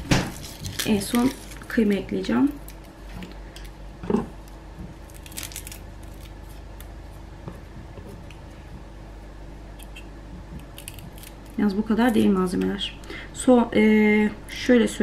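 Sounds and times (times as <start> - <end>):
garlic skin crackling: 0.0 - 8.6, 9.7 - 12.8
low steady hum: 0.0 - 15.0.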